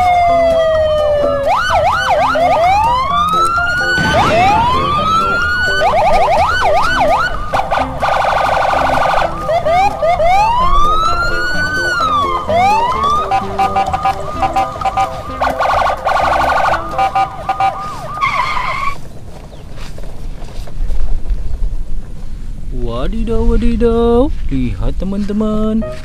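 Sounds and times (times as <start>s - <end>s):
siren fast yelps: 0.0s - 19.0s
siren slow rising wails: 0.0s - 19.0s
warbling siren: 0.0s - 19.0s.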